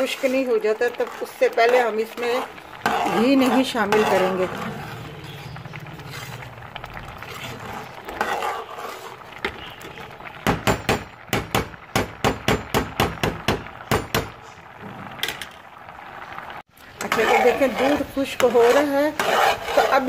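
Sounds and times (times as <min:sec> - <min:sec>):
metal spoon stirring in a pan: 0:00.0 - 0:14.6, 0:16.8 - 0:20.0
spoon knocking on metal pan: 0:10.4 - 0:14.3.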